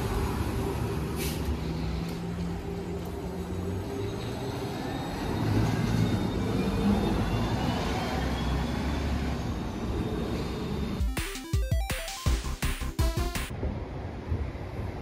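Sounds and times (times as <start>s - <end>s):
bus engine rumble: 0.0s - 7.6s
road noise: 0.0s - 11.1s
music: 11.0s - 13.5s.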